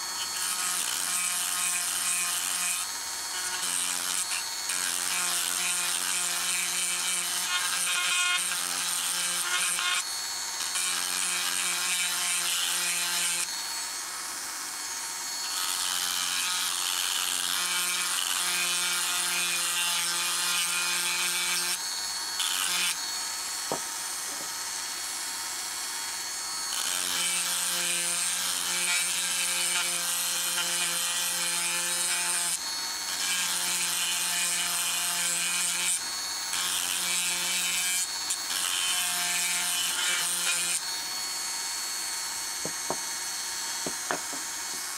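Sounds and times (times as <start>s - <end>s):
rotary tool whining: 0.0s - 44.9s
bit grinding wood: 42.5s - 44.9s.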